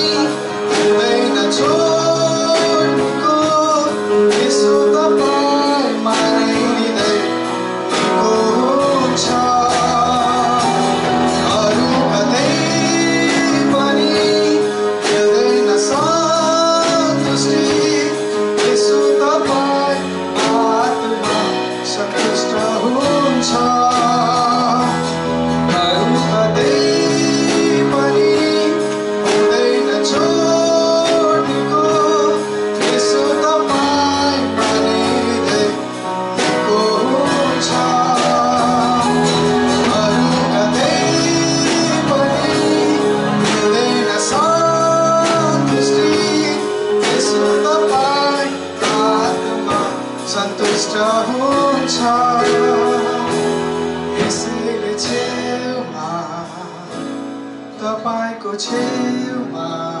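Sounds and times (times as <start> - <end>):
guitar accompaniment: 0.0 - 60.0
man singing into a microphone: 0.0 - 60.0.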